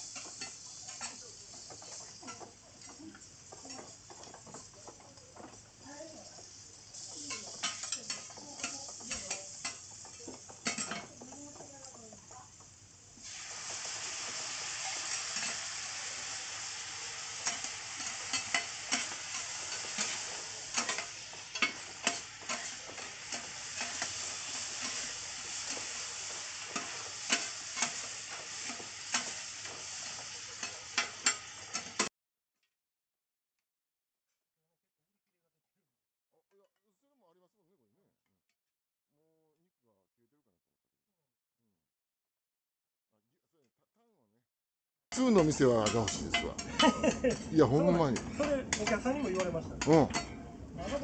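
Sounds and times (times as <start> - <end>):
sauce sizzling on hot griddle: 0.0 - 32.1, 45.1 - 51.0
metal spatulas clacking and scraping: 0.1 - 5.7, 6.3 - 12.1, 14.8 - 15.8, 17.4 - 32.1, 45.2 - 51.0.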